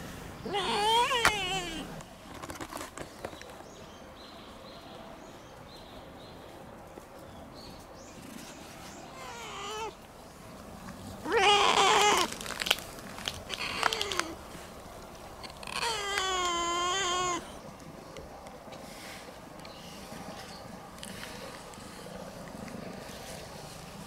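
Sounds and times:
cat meowing: 0.4s - 2.0s, 9.2s - 10.0s, 11.2s - 12.3s, 15.6s - 17.4s.

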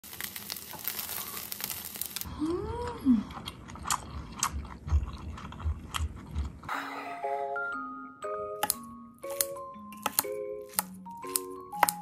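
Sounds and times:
oil sizzling in a pan: 0.0s - 2.3s.

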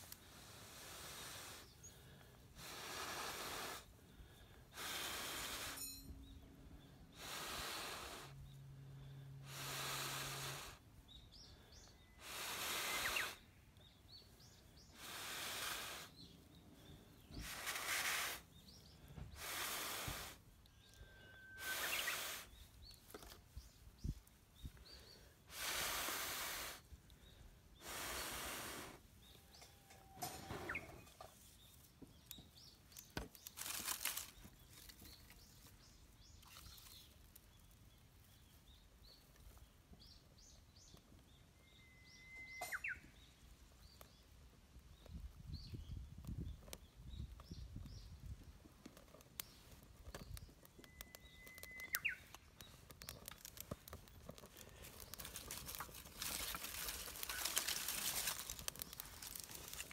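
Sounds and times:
dry bark rustling scrape: 17.4s - 18.5s, 33.0s - 35.7s, 52.0s - 59.9s.

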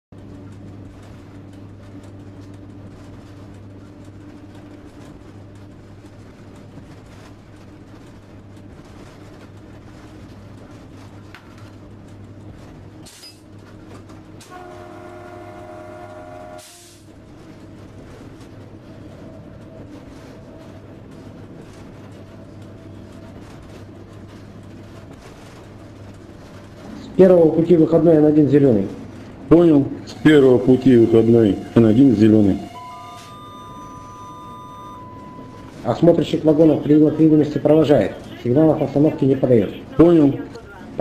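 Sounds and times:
electric train cab hum: 0.1s - 41.0s
train horn chord: 14.4s - 17.1s, 30.1s - 35.6s.

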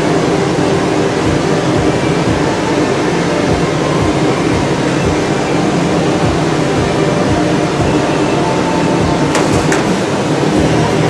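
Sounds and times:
furnace roaring: 0.0s - 11.0s
uneven low throb: 0.0s - 11.0s.

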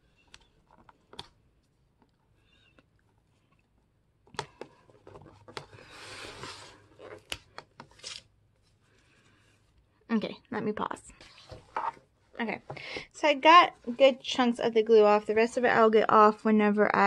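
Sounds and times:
tearing scrape: 5.8s - 7.3s, 7.9s - 8.3s.

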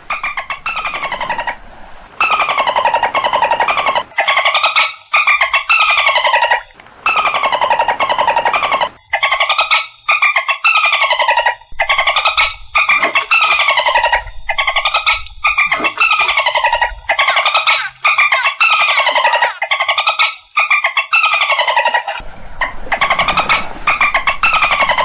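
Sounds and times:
dolphin clicking calls: 2.2s - 22.2s.

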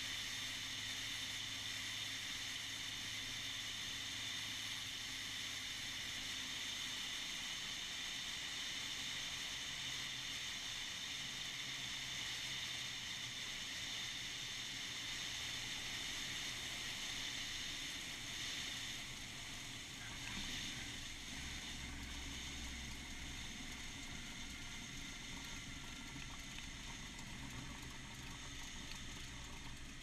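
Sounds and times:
airplane engine drone: 0.0s - 30.0s
wheels rolling on runway: 12.2s - 30.0s.

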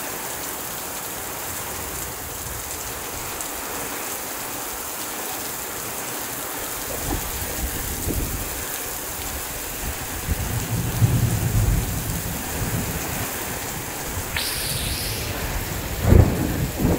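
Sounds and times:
heavy rain falling: 0.0s - 16.9s
low rumble of thunder: 10.3s - 14.4s, 15.2s - 16.9s.

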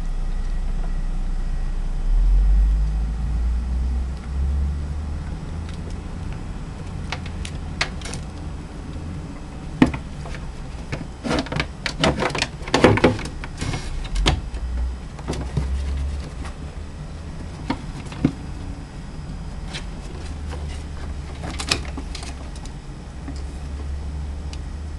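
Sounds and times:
steady low hum: 0.0s - 24.9s
animals scrabbling in cupboard: 9.8s - 14.4s, 15.2s - 16.6s, 19.6s - 23.5s.

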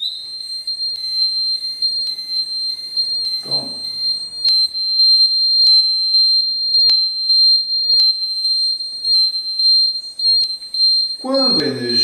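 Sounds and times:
high-pitched alarm buzzer tone: 0.0s - 12.0s.

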